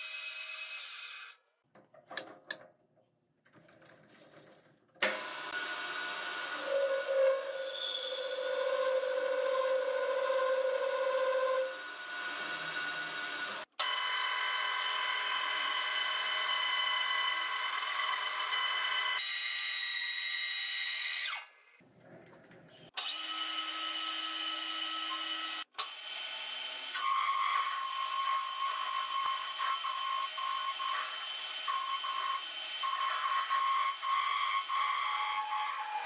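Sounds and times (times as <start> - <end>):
metal lathe motor whining: 5.0 - 14.4
lathe tool cutting metal: 5.0 - 19.2.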